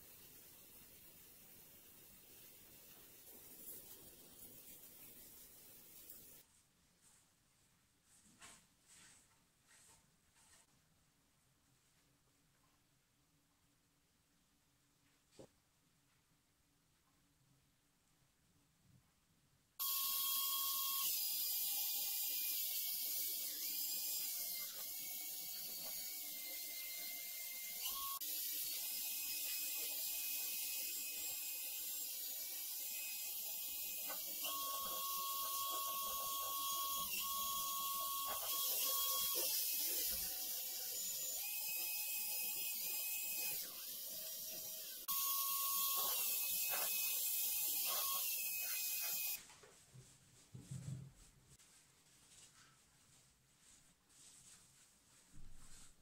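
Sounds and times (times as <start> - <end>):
drill motor whine: 19.8 - 49.4.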